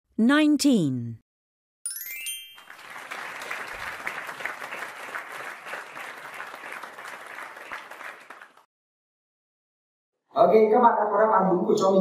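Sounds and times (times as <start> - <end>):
short rising chime: 1.9 - 3.0
applause: 2.3 - 8.7.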